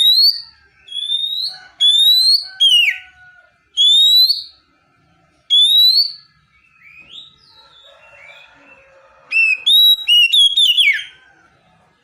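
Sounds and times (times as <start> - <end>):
bird whistled calls: 0.0 - 3.0, 3.8 - 4.5, 5.5 - 7.4, 9.3 - 11.1.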